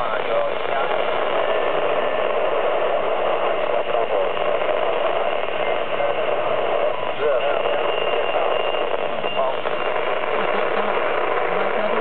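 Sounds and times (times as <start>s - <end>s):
faint garbled signal: 0.0s - 12.0s
radio static hiss: 0.0s - 12.0s.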